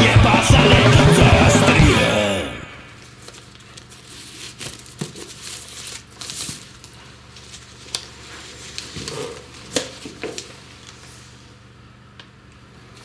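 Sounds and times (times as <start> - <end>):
rock song: 0.0 - 2.9
gift wrapping rustling: 3.0 - 11.1.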